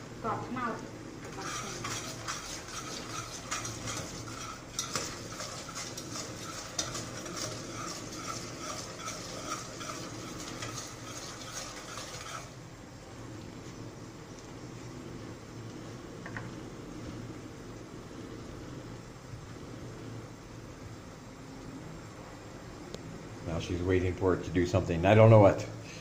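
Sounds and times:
metal spoon scraping a pot: 1.3s - 12.6s.

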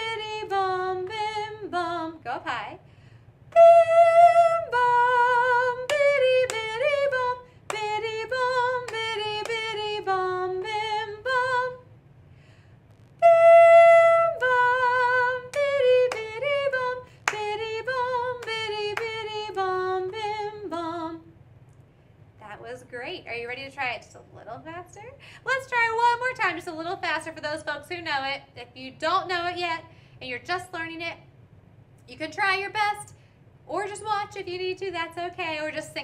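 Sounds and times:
woman singing unaccompanied: 0.0s - 2.8s, 3.5s - 11.9s, 13.2s - 21.3s, 25.4s - 31.2s, 33.7s - 36.0s.

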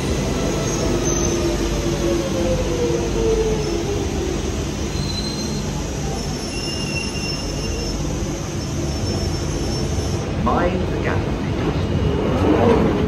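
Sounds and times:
train wheels rumbling on rail: 0.0s - 13.0s
high wheel squeals: 4.8s - 10.2s.

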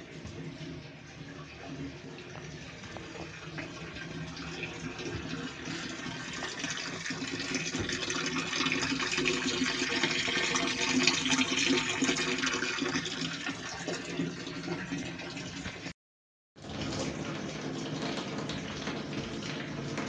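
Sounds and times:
liquid pouring into container: 0.0s - 15.9s, 16.6s - 20.0s.

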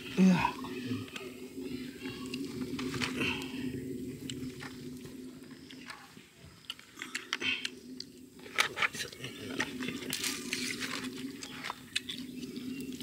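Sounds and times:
palm fronds crinkling: 8.4s - 12.6s.

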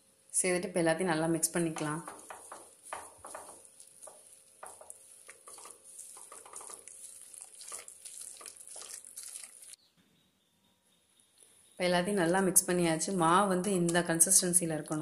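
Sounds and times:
hand squishing thick batter: 2.1s - 9.8s.

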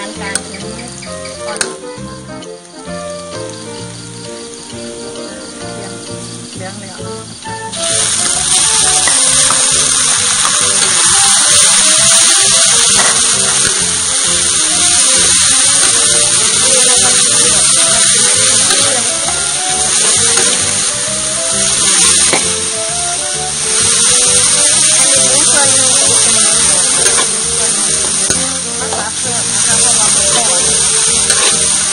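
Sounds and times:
background music: 0.0s - 31.9s
meat sizzling in a wok: 0.0s - 31.9s.

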